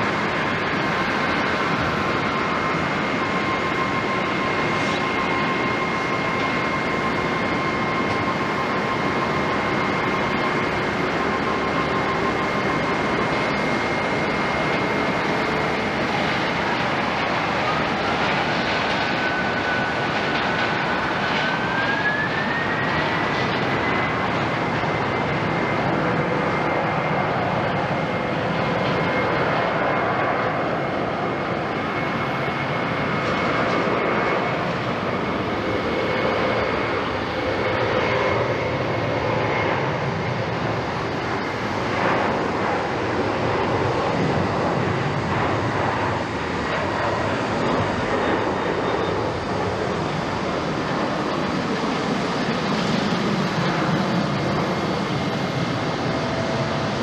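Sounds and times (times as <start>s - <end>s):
jet engines at takeoff: 0.0s - 57.0s.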